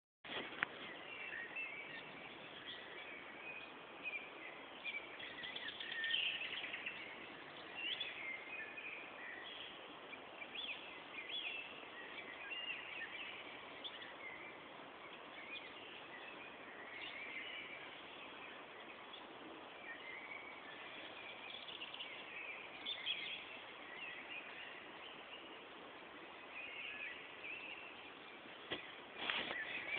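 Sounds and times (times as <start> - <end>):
songbirds singing: 0.3 - 29.9
steady background hiss: 0.3 - 29.9.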